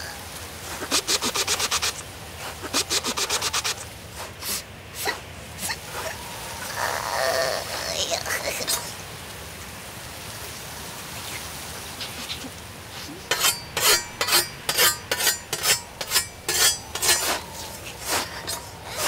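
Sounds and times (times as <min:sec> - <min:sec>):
scythe blade swishing: 0:13.0 - 0:19.0.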